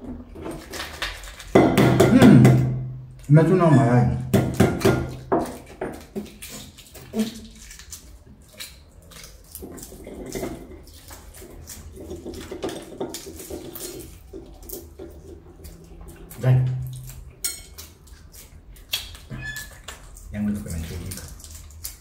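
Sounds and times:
eggshells crackling: 0:00.5 - 0:01.6, 0:05.1 - 0:15.0, 0:15.6 - 0:22.0.

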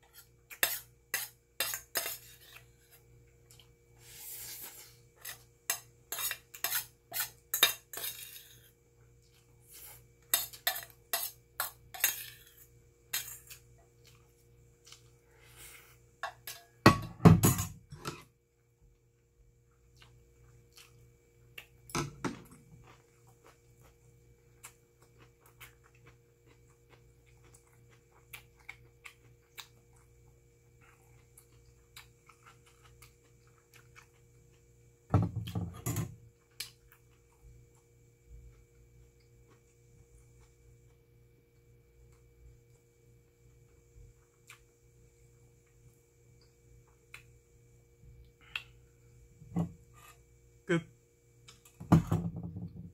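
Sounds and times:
metal spoon scraping a bowl: 0:00.0 - 0:03.0, 0:04.1 - 0:08.7, 0:09.7 - 0:13.6, 0:49.9 - 0:50.2.

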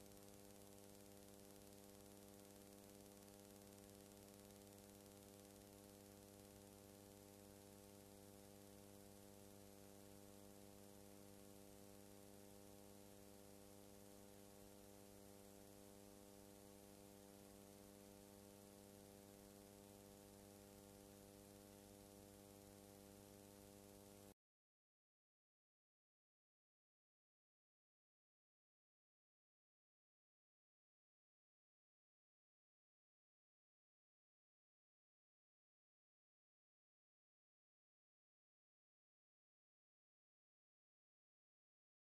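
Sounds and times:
faint electrical hum with hiss: 0:00.0 - 0:24.4.

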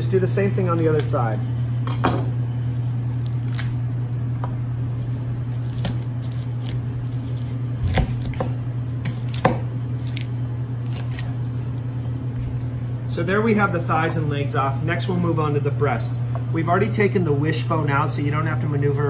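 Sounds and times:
steady low hum: 0:00.0 - 0:19.0
knife cutting roasted duck: 0:05.0 - 0:11.5.

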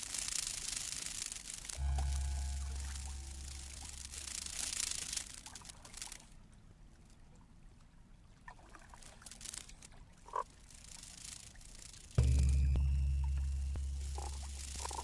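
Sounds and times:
hissing noise: 0:00.0 - 0:05.6, 0:10.8 - 0:15.0
brief electronic tone: 0:01.8 - 0:04.7.

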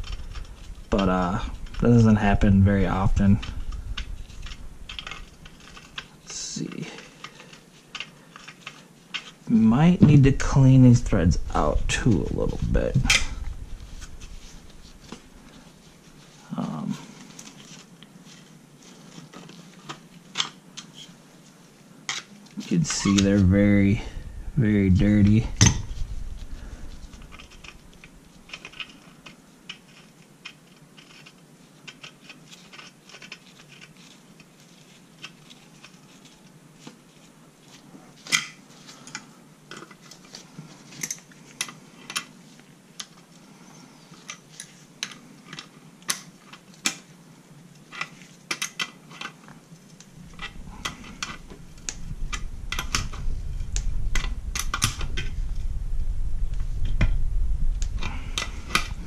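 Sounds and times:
heavy handling rumble: 0:00.0 - 0:06.0, 0:09.5 - 0:16.2, 0:22.6 - 0:28.7, 0:50.2 - 0:59.0.

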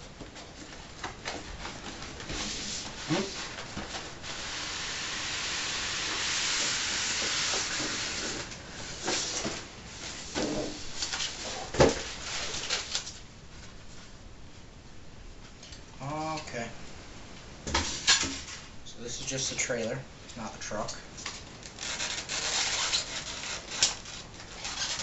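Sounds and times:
cardboard and foam sliding: 0:01.6 - 0:13.0
foam squeaks: 0:03.0 - 0:03.6.

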